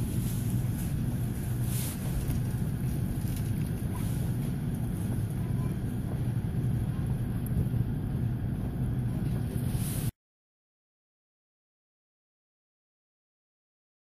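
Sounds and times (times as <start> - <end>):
in-store background rumble: 0.0 - 10.1.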